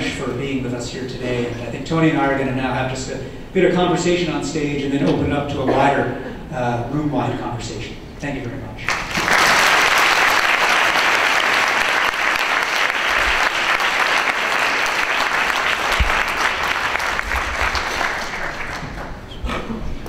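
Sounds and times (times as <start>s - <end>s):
audience applauding: 8.9s - 19.4s.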